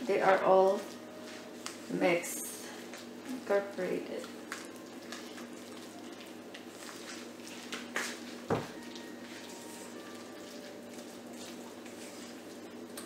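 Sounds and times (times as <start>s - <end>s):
spoon stirring batter in bowl: 9.2s - 13.0s.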